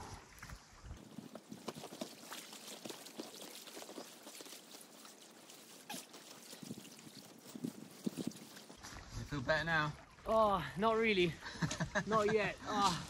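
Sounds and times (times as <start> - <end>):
water lapping on pebbles: 0.0 - 10.3.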